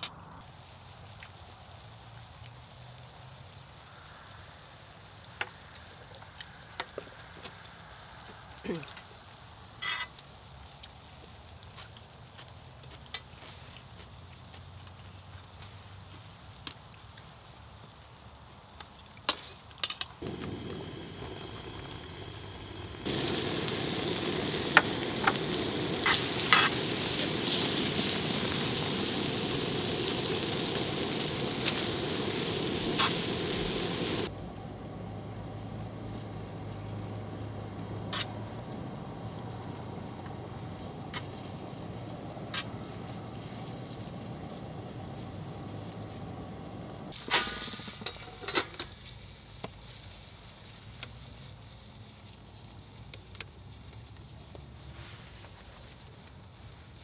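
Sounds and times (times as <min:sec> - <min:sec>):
food sizzling on griddle: 0:20.2 - 0:34.4, 0:37.8 - 0:50.3.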